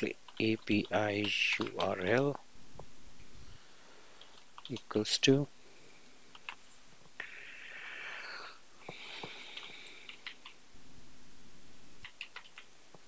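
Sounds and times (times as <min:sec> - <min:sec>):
breathing close to microphone: 0:07.2 - 0:10.3.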